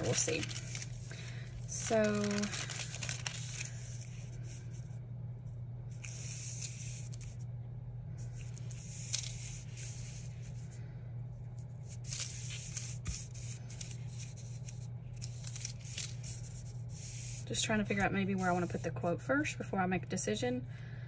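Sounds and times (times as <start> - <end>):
plastic sheet crinkling on paper: 0.0 - 4.6, 8.4 - 10.6, 11.9 - 17.3
low hum: 0.0 - 21.0.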